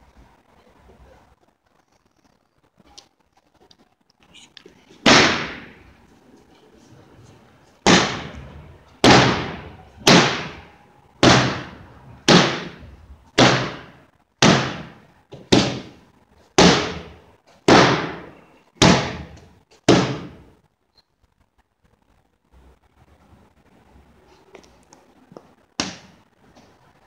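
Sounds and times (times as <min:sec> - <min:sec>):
loud echoing slams: 0:05.0 - 0:05.8, 0:07.8 - 0:16.0, 0:16.6 - 0:20.4.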